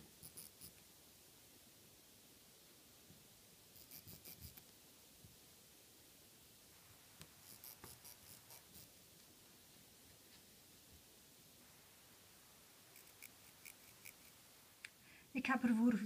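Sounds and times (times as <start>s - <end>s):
chalk pencil scratching on fabric: 0.2s - 0.8s, 3.8s - 4.6s, 7.3s - 9.0s, 12.9s - 14.4s.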